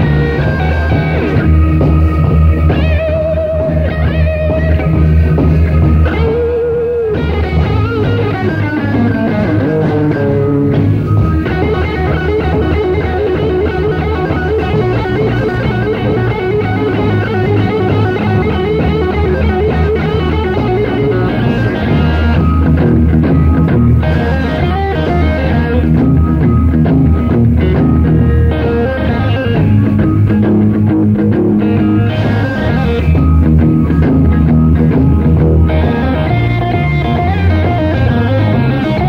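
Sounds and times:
electric guitar lead: 0:00.0 - 0:39.0
live blues-rock band: 0:00.0 - 0:39.0.

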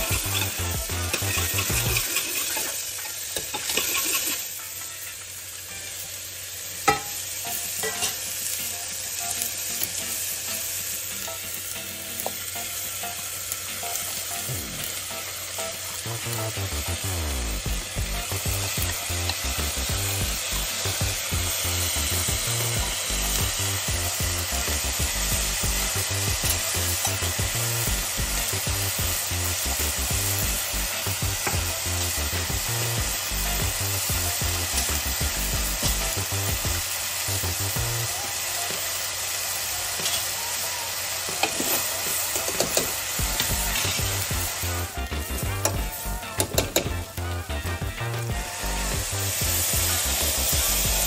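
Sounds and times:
vegetables sizzling in oil: 0:00.0 - 0:51.0.

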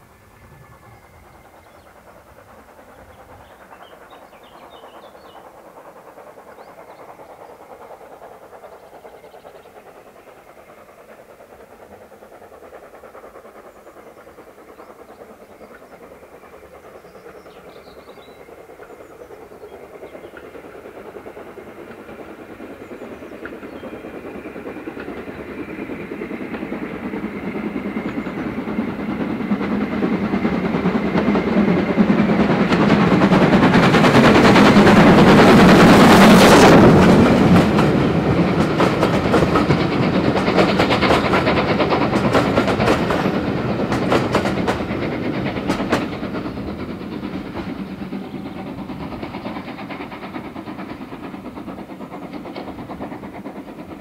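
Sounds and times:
steam locomotive chuffing: 0:00.0 - 0:54.0.

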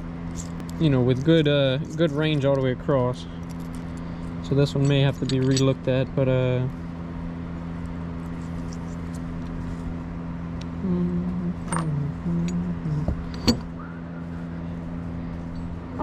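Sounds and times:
steady low hum: 0:00.0 - 0:16.0
metal tools clinking: 0:03.4 - 0:06.0, 0:11.6 - 0:12.6.

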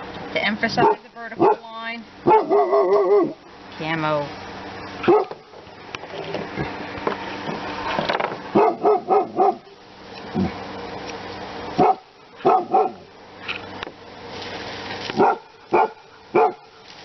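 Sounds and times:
dog barking: 0:00.8 - 0:03.4, 0:05.0 - 0:05.4, 0:08.5 - 0:09.8, 0:11.8 - 0:13.1, 0:15.2 - 0:16.7.

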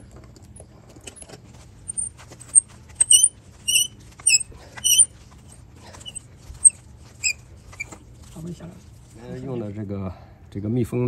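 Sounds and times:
threads squeaking: 0:01.1 - 0:08.0.

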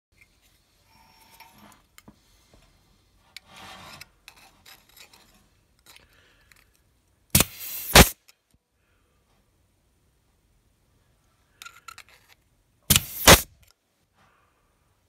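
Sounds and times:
pneumatic punch snapping: 0:07.4 - 0:08.2, 0:12.9 - 0:13.6.

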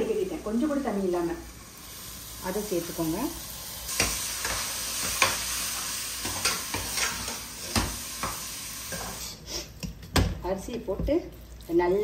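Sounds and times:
food sizzling in a pot: 0:00.0 - 0:09.8.

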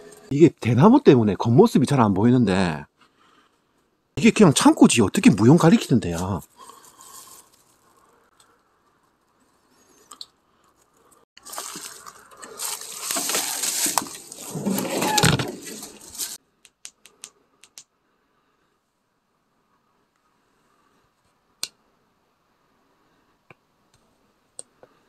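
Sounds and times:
footsteps through dry leaves: 0:11.4 - 0:16.4.

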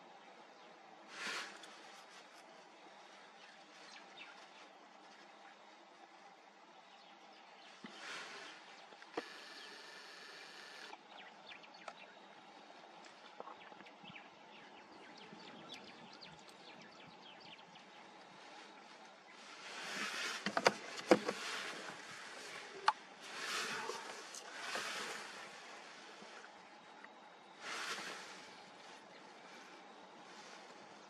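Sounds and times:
small high chirps and ticks: 0:10.5 - 0:12.3, 0:13.0 - 0:19.2.

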